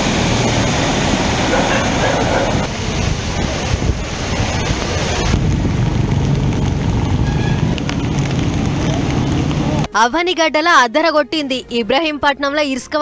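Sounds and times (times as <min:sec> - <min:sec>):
wind buffeting microphone: 0:01.5 - 0:09.9.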